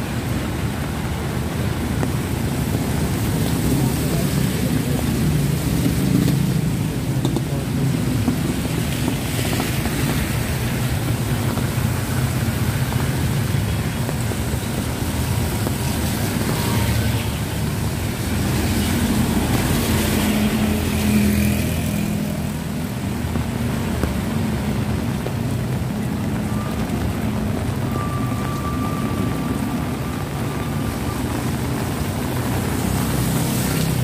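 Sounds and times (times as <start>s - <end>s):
heavy rain on wet street: 0.0s - 34.0s.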